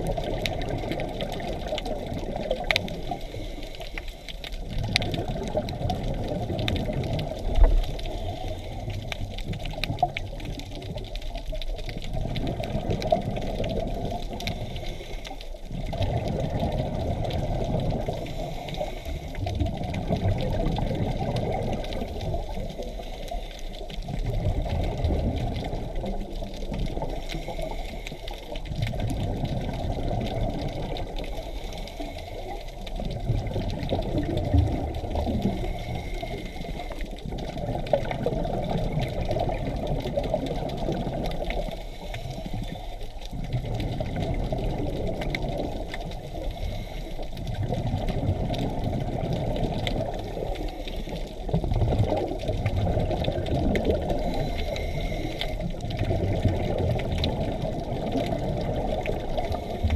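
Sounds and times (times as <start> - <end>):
underwater regulator breathing: 0.5 - 5.7, 6.6 - 10.0, 12.8 - 19.7, 25.7 - 33.0, 35.2 - 38.0, 40.5 - 44.1, 45.0 - 48.1, 52.9 - 57.6, 58.2 - 59.9.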